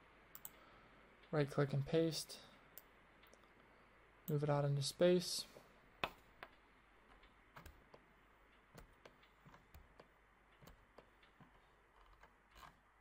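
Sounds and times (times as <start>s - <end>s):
computer mouse clicks: 0.3s - 0.6s, 6.0s - 12.8s.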